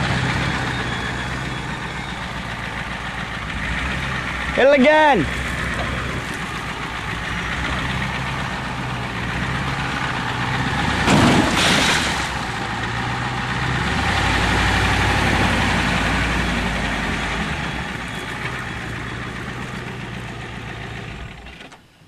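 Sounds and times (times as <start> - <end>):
truck engine running: 0.0 - 21.8
metal crunching impact: 5.3 - 14.4.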